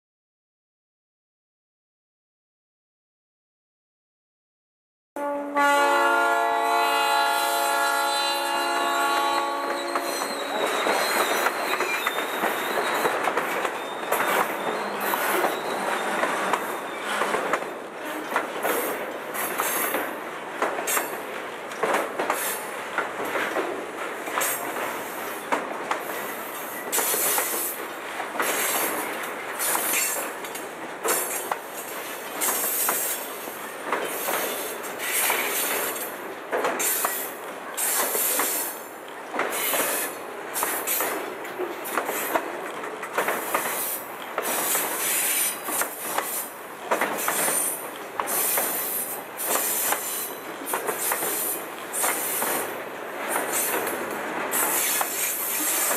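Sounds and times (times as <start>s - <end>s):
train cars rolling past: 5.6s - 55.9s
high-pitched wheel squeal: 9.6s - 13.1s, 13.7s - 17.2s.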